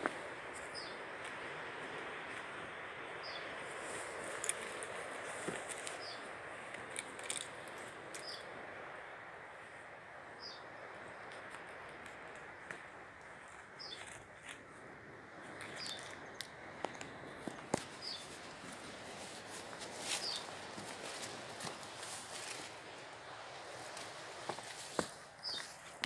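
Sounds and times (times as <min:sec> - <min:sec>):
steady rushing hiss: 0:00.0 - 0:26.0
small bird chirping: 0:08.1 - 0:08.5, 0:13.8 - 0:14.2, 0:15.6 - 0:16.4, 0:18.0 - 0:18.3.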